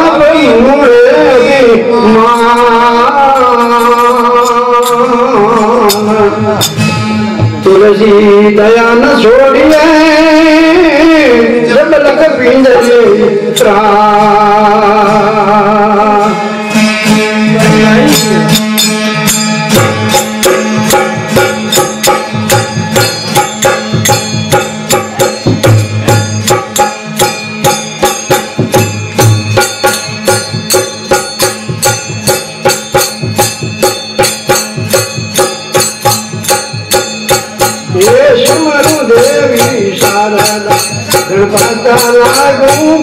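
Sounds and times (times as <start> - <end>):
hand cymbals clashing: 2.4 - 7.6, 16.7 - 43.0.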